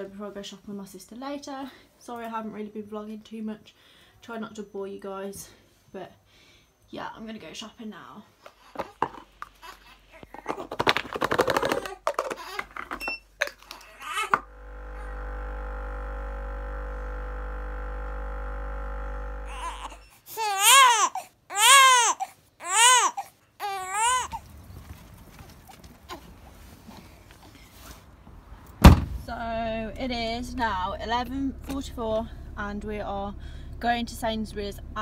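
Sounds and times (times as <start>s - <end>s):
baby crying: 13.7s - 14.4s, 19.5s - 24.4s
machine humming: 14.3s - 20.1s, 29.3s - 35.0s.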